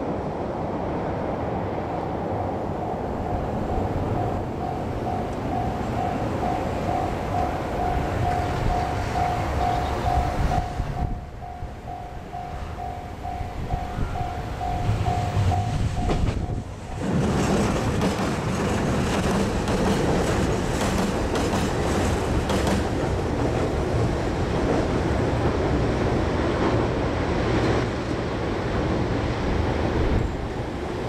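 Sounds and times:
diesel railcar crossing steel bridge: 0.0s - 31.0s
level-crossing bell ringing: 2.4s - 16.7s.

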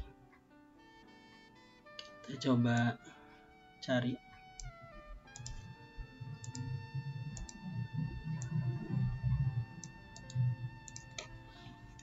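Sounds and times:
faint steady tones: 0.0s - 12.0s
low irregular rumble: 4.7s - 12.0s
computer mouse clicking: 5.3s - 5.7s, 6.4s - 7.7s, 8.4s - 8.6s, 9.8s - 11.3s.

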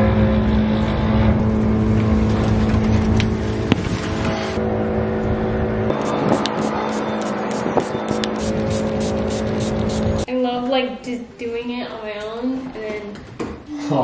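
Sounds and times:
spray bottle hissing: 6.0s - 10.3s.

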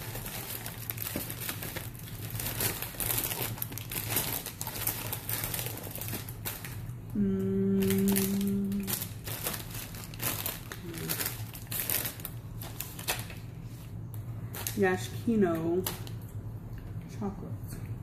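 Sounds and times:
plastic wrappers crinkling: 0.0s - 16.2s
person humming: 7.1s - 9.0s, 10.7s - 11.3s.

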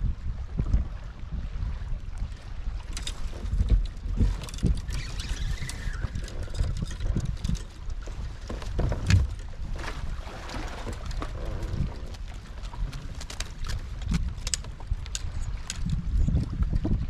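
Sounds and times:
water lapping against kayak hull: 0.0s - 17.0s
wind buffeting microphone: 0.0s - 17.0s.

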